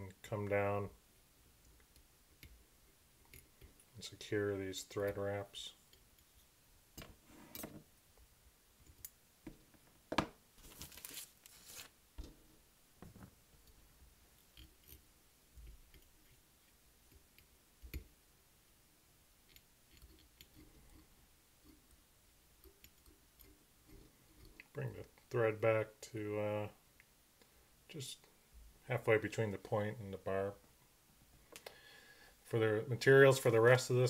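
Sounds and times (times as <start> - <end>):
rustling: 9.7 - 17.2
thread wrapping over wire: 10.6 - 13.8.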